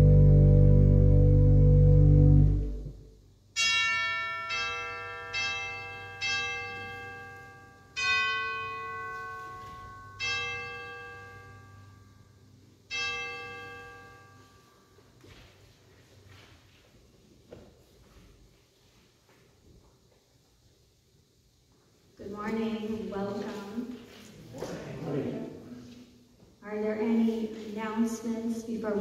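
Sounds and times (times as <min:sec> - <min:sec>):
pipe organ chord: 0:00.0 - 0:03.1.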